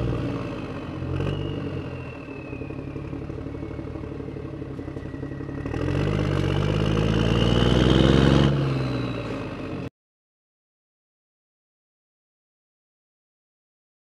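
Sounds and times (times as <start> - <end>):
engine running and revving: 0.0 - 9.9.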